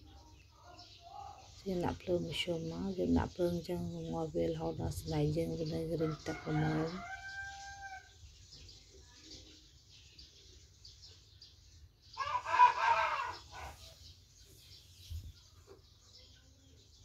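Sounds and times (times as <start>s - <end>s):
rooster crowing: 6.1s - 8.1s, 12.2s - 13.9s.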